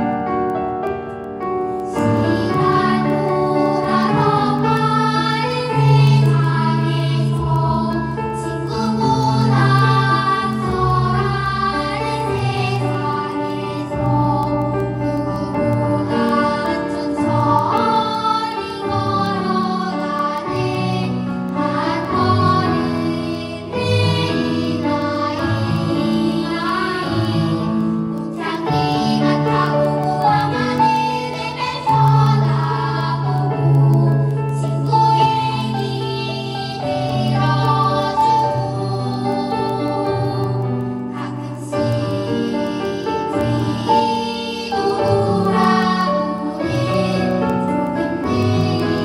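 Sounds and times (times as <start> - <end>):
piano introduction: 0.0 - 49.0
children singing: 1.8 - 49.0.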